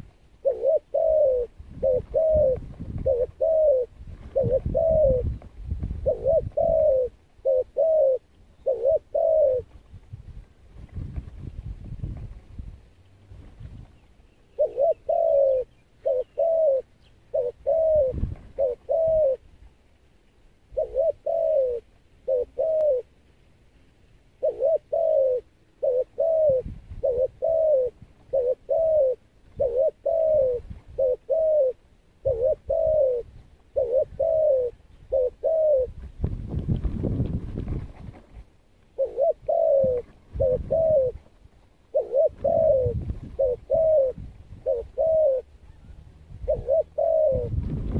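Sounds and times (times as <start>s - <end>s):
dove cooing: 0.0s - 9.8s, 14.3s - 19.5s, 20.7s - 23.2s, 24.3s - 36.0s, 38.9s - 47.9s.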